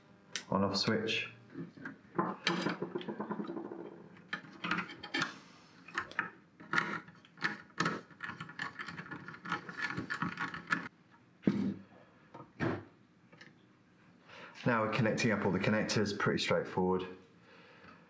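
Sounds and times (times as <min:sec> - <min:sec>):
metallic clicks and rattles: 0:05.9 - 0:10.9.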